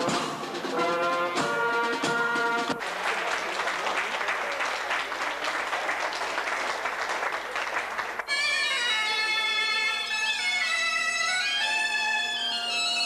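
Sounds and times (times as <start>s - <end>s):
brass music: 0.0s - 3.1s
crowd applauding: 2.7s - 8.5s.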